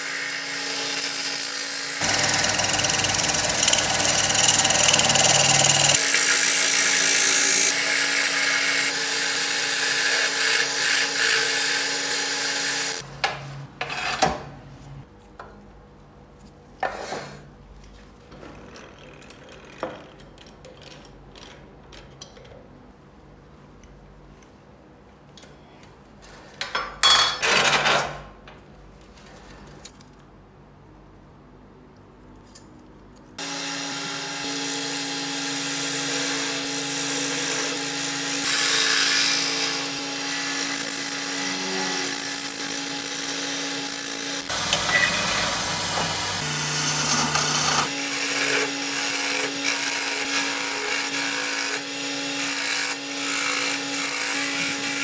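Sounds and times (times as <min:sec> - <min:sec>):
wood lathe humming: 0:00.2 - 0:13.0, 0:33.4 - 0:55.0
turning tool scraping wood: 0:02.0 - 0:08.2, 0:44.4 - 0:51.8.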